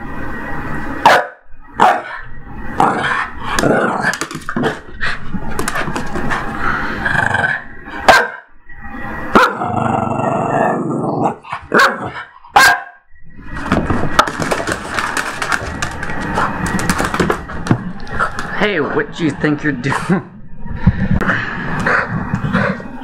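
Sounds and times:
small dog barking: 1.0s - 2.1s, 8.1s - 8.4s, 9.4s - 9.6s, 11.7s - 13.0s.

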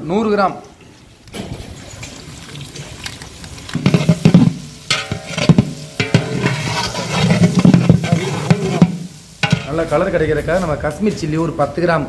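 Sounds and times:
onions sizzling in oil: 1.4s - 11.1s
metal paddle scraping a pot: 3.8s - 9.8s
pot ringing: 3.9s - 6.8s.

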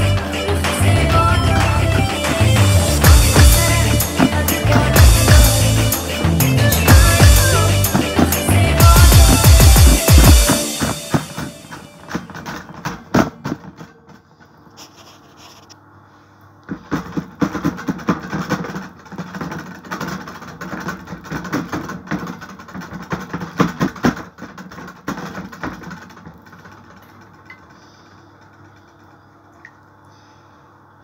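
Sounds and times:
hands patting dough on metal tray: 16.7s - 27.4s.

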